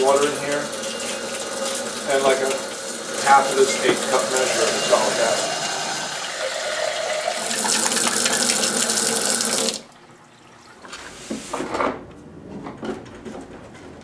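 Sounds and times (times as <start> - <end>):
tap water running into a jar: 0.0 - 10.0.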